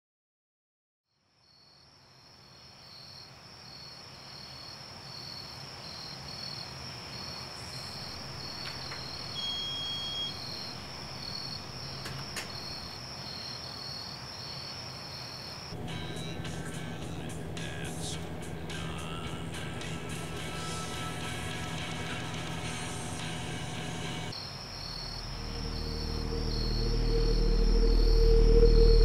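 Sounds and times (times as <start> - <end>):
crickets chirping: 1.4 - 29.0
low hum: 7.6 - 13.0, 15.8 - 24.3, 25.0 - 29.0
thin high whistle: 7.7 - 12.9, 25.3 - 29.0.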